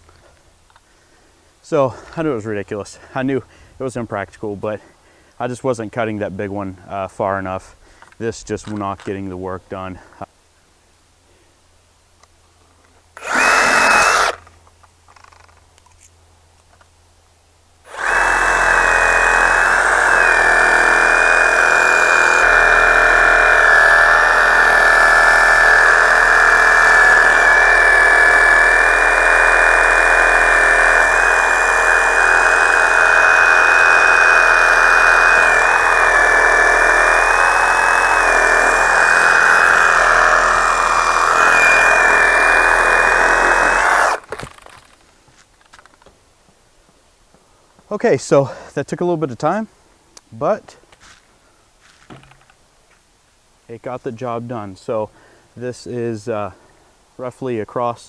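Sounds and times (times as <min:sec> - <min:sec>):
reciprocating saw cutting wood: 0:13.2 - 0:14.5, 0:17.9 - 0:45.0.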